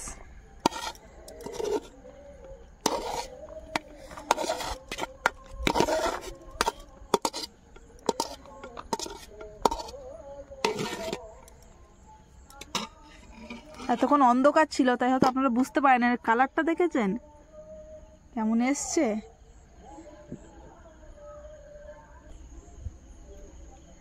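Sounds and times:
metal spoon scraping a pot: 0.6 - 11.6, 12.6 - 14.3.

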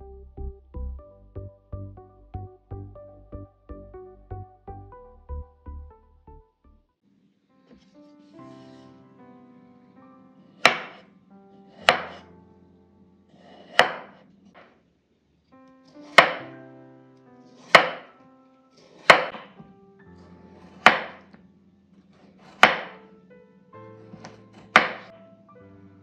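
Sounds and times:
knife chopping potato on board: 10.6 - 11.0, 11.8 - 12.2, 13.4 - 14.2, 16.0 - 16.4, 17.6 - 18.1, 18.8 - 19.7, 20.5 - 21.3, 22.1 - 23.0, 24.0 - 25.1.

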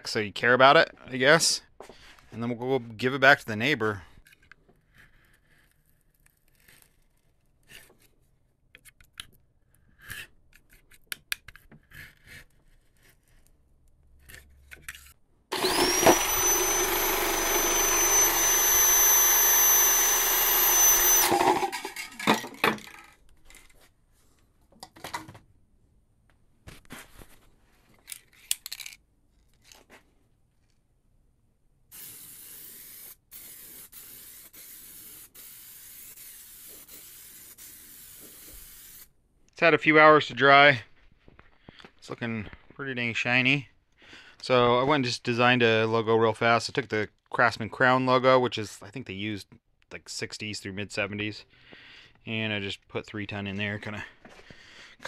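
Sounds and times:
power tool whining: 15.5 - 23.1.

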